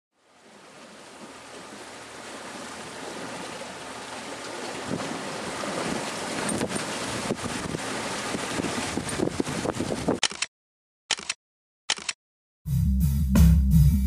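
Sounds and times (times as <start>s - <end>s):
water washing along boat hull: 0.1s - 10.2s
wind on microphone: 4.8s - 10.2s.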